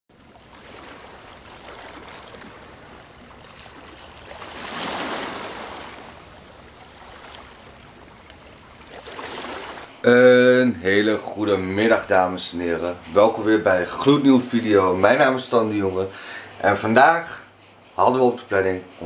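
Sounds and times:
small waves lapping at shore: 0.1s - 9.9s.

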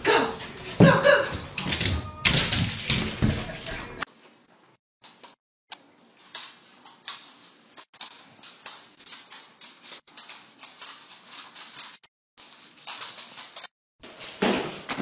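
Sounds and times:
dog claws scrabbling on wood floor: 0.4s - 4.0s.

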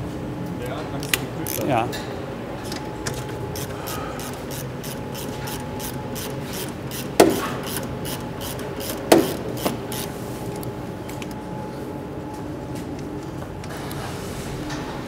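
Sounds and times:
ratchet wrench clicking: 1.0s - 1.6s, 3.6s - 10.1s.

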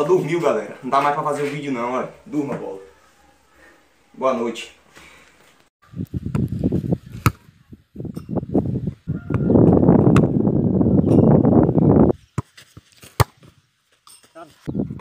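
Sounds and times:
football being kicked: 7.2s - 7.4s.

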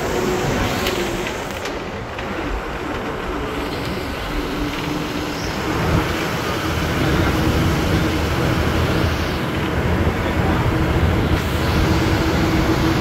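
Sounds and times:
bus diesel engine pulling uphill: 0.0s - 13.0s
road noise: 0.0s - 13.0s
wind through open window: 0.0s - 13.0s.

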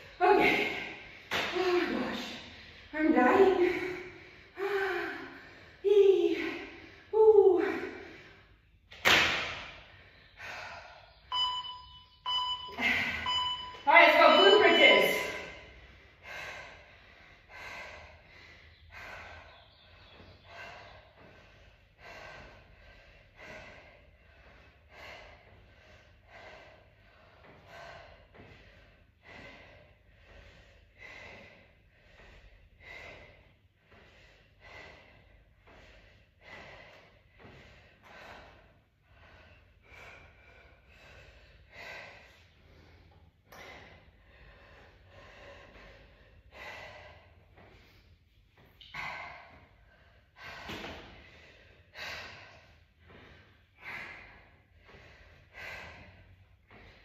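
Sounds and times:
person breathing hard: 15.4s - 57.0s.

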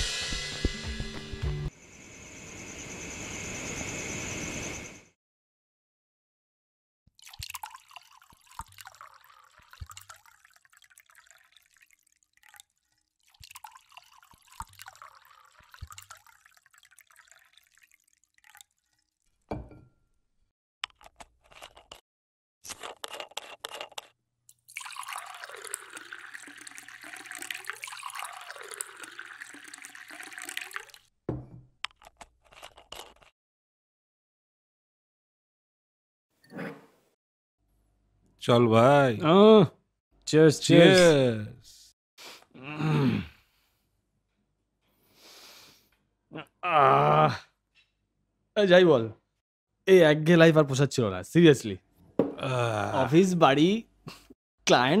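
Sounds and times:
liquor pouring into glass: 7.2s - 19.2s, 24.5s - 31.1s.

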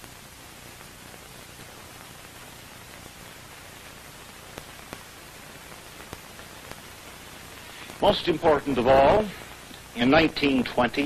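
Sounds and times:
film soundtrack hiss: 0.0s - 11.0s
faint clicks: 4.5s - 7.0s.

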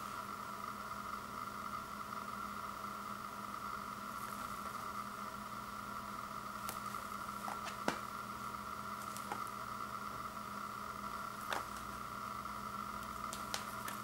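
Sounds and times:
mid-pitched whine: 0.0s - 14.0s
steady background hiss: 0.0s - 14.0s.

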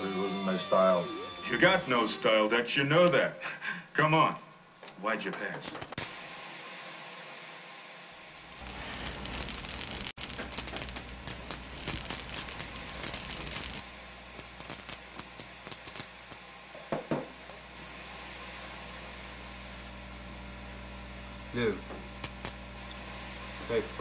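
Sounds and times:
electrical crackle and hiss: 5.4s - 6.4s, 8.2s - 16.5s, 22.1s - 22.7s
steady low hum: 7.4s - 24.0s.

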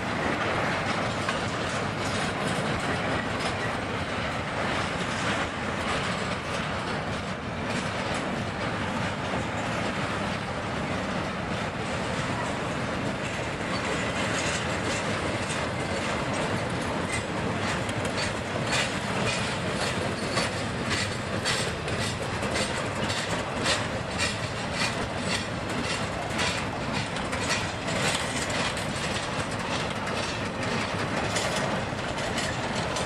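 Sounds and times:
freight train wheel and rail noise: 0.0s - 33.0s
wheels clicking over rail joints: 0.0s - 33.0s.

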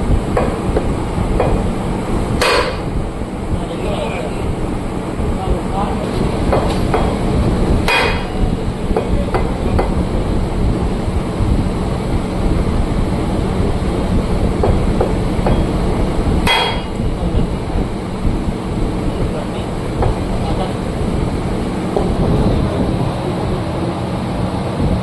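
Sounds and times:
low mechanical rumble: 0.0s - 25.0s
ringing hammer strikes: 7.9s - 8.4s, 16.5s - 17.0s.

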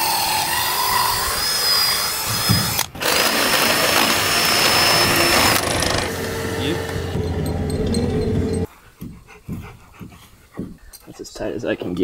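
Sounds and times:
cordless drill boring into wood: 0.0s - 7.1s.

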